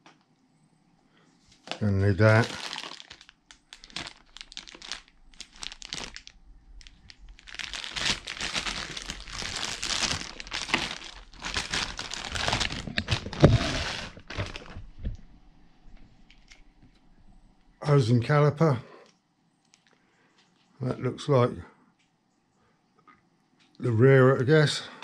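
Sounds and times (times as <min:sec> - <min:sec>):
plastic bags crinkling: 0:01.6 - 0:15.2.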